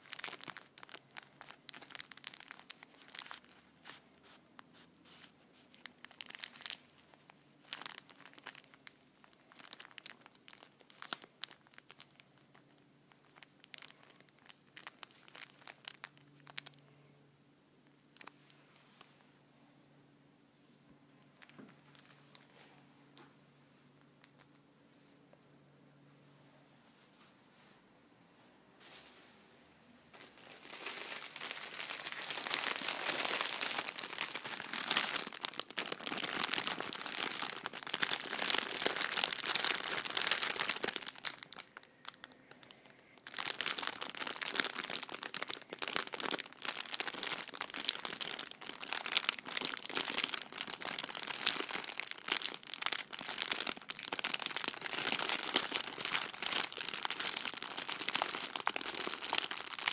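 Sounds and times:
plastic bag crinkling: 0.0 - 16.8, 21.4 - 22.5, 30.1 - 59.9.

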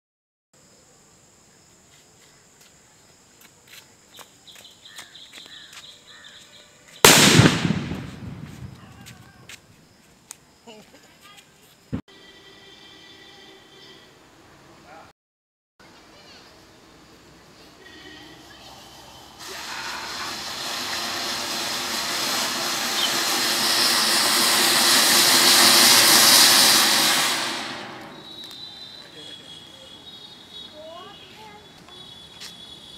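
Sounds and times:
firecracker bang: 7.0 - 9.2, 19.4 - 28.7.

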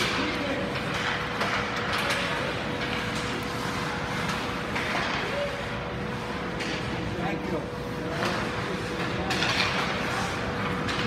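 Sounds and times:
hockey stick clacks: 0.0 - 5.3, 8.2 - 11.0
skates on ice: 0.0 - 7.2
steady hum: 0.0 - 11.0.

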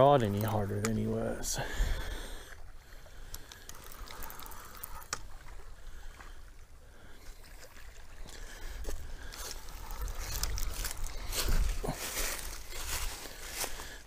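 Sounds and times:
water lapping at bank: 0.0 - 14.0
fishing reel being cranked: 0.2 - 1.2, 3.2 - 5.3, 9.7 - 11.2
faint reel clicks: 3.2 - 5.5
wind rumbling on microphone: 8.0 - 13.6.

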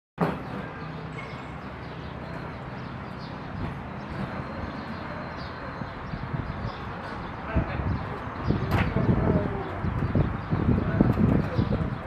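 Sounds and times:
outdoor background noise: 0.2 - 12.0.

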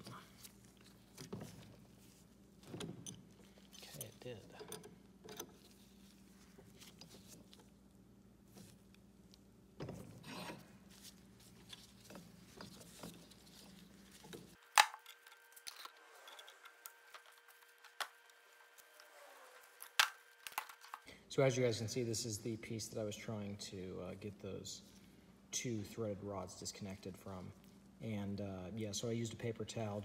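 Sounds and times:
wrench scraping metal parts: 11.6 - 17.4.

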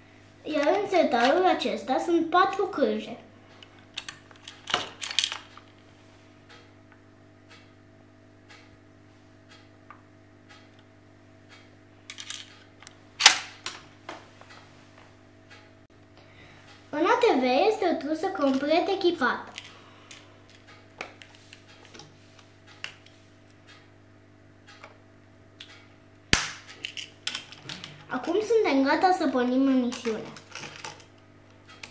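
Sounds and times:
low electrical hum: 0.0 - 31.9
small plastic parts clicking: 4.0 - 5.6, 12.1 - 12.6, 29.9 - 31.1.

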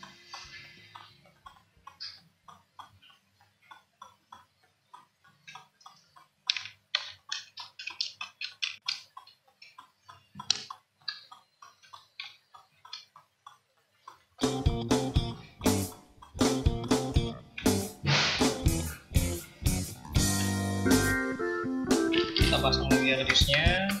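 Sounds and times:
small sharp clicks and taps: 0.0 - 14.6
sharp knock: 18.0 - 18.6.

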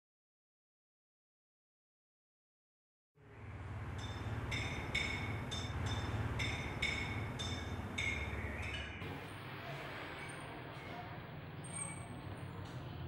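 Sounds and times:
low steady drone: 3.2 - 10.1
bell-like film music notes: 3.8 - 9.0.

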